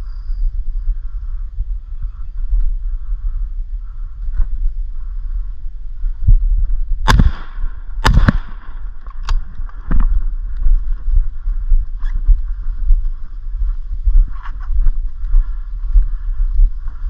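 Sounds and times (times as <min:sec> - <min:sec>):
steady low rumble: 0:00.0 - 0:17.0
shotgun shots: 0:07.0 - 0:09.0.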